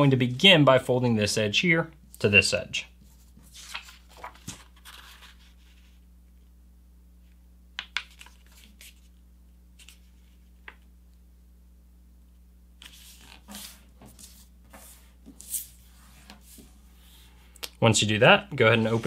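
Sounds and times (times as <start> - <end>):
paper rustling and crackling: 3.2 - 5.8.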